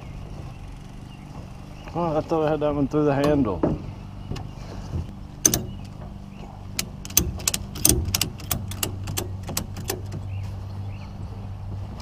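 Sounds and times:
steady low hum: 0.0 - 12.0
ratchet strap clicking: 5.4 - 6.0, 6.7 - 10.2.

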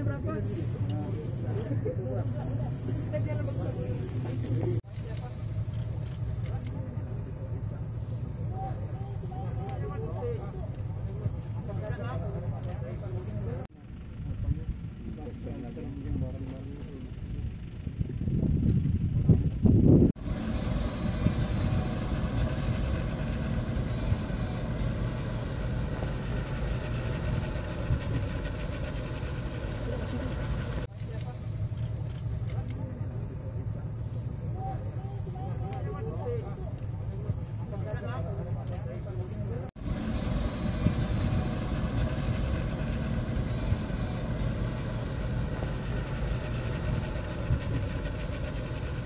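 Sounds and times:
boat engine rumbling: 0.0 - 49.0
motorboat engine running: 39.2 - 49.0.

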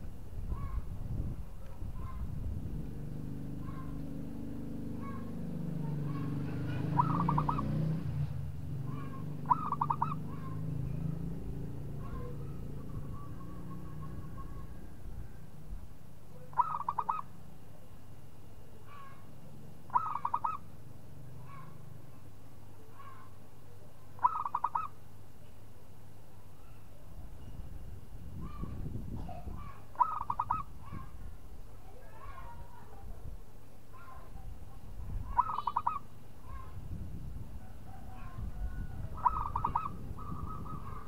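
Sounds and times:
dove cooing: 6.0 - 7.8, 8.9 - 11.0, 16.4 - 17.3, 19.9 - 20.6, 24.2 - 24.9, 29.6 - 31.1, 35.3 - 36.1, 37.6 - 41.0.

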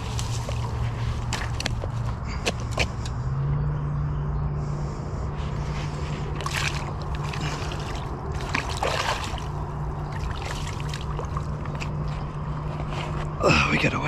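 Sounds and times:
water splashing and sloshing: 0.0 - 2.9, 5.5 - 13.4
steady low hum: 0.0 - 14.0.

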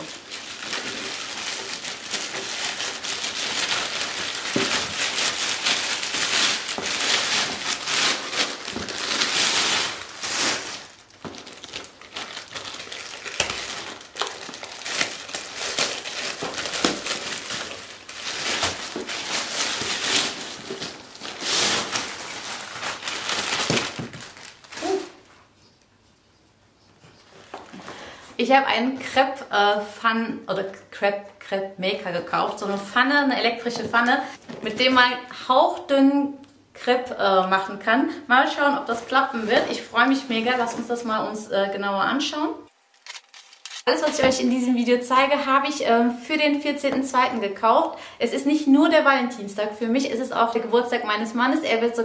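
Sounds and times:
plastic mailer bags crinkling: 0.0 - 25.3, 38.9 - 41.2, 42.7 - 44.6.

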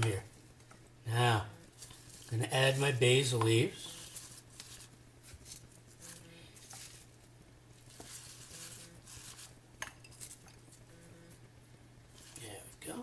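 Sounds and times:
low steady hum: 0.0 - 13.0
leaves rustling: 3.8 - 9.6.

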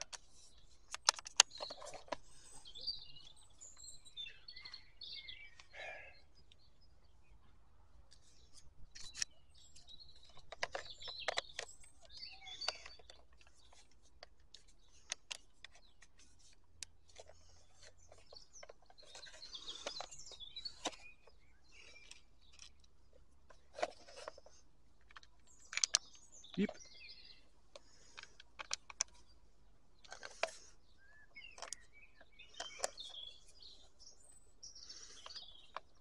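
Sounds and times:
plastic parts clicking and tapping: 0.0 - 2.3, 8.1 - 26.9, 27.7 - 29.3, 30.0 - 30.7, 31.4 - 33.8, 35.0 - 36.0
birds chirping: 0.0 - 36.0.

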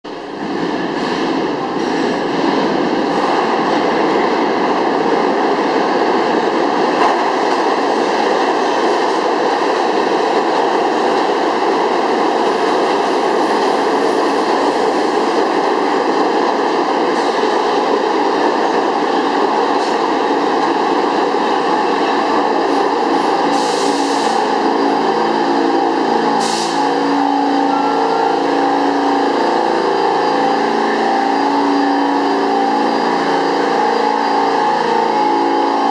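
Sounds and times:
train wheels rumbling on rails: 0.0 - 35.9
short air hisses: 26.4 - 26.8.

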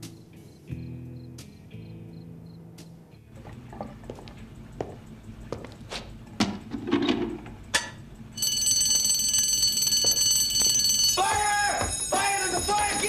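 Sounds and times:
fire alarm bell ringing: 8.4 - 13.0.

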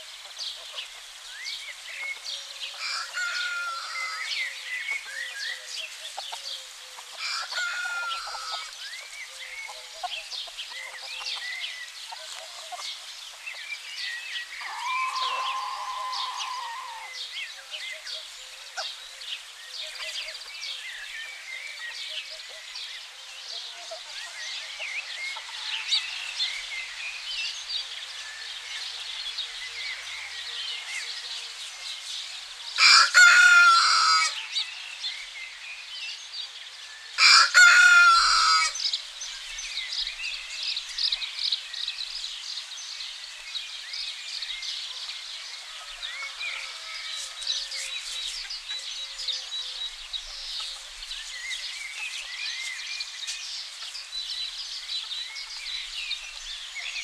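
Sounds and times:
songbirds chirping: 0.0 - 57.0
rooster crowing: 2.8 - 4.3, 7.2 - 8.7, 14.6 - 17.2, 32.8 - 34.4, 37.2 - 38.8.

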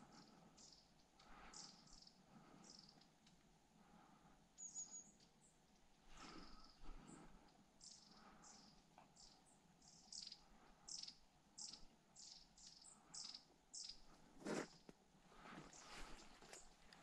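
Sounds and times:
small bird chirping: 0.1 - 3.3, 4.6 - 5.6, 7.8 - 14.9.

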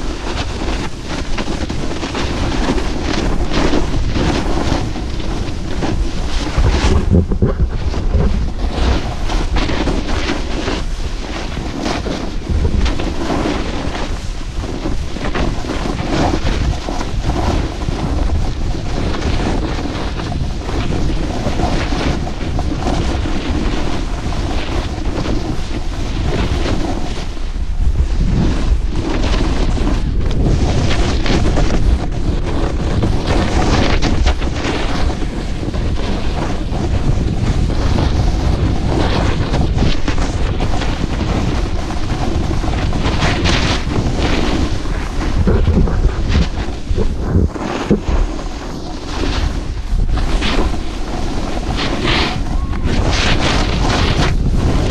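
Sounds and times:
wind buffeting microphone: 0.0 - 54.9
edges scraping on snow: 0.1 - 54.9.

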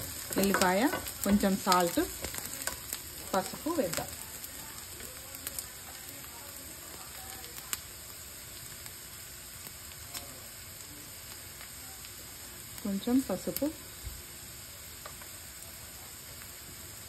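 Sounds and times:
vegetables sizzling in hot oil: 0.0 - 17.0.

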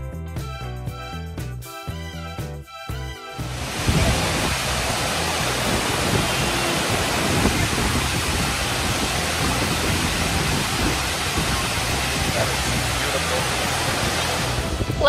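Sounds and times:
waterfall rushing: 3.4 - 15.0.

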